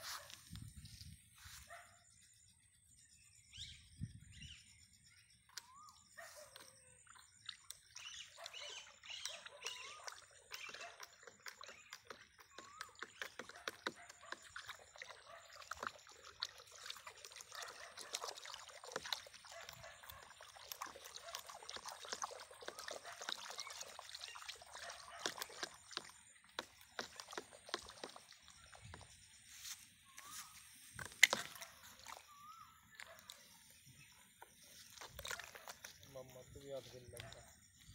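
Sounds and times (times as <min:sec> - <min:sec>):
wet paste sloshing: 0:07.1 - 0:29.1, 0:31.0 - 0:33.8, 0:34.4 - 0:36.3
rod clicking against bucket: 0:25.0 - 0:28.2, 0:30.9 - 0:32.2.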